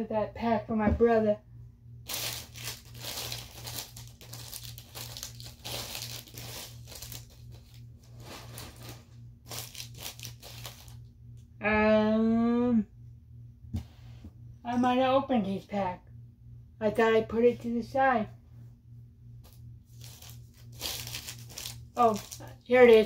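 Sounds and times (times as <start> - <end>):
wrappers crinkling and rustling: 2.0 - 11.1, 19.5 - 23.0.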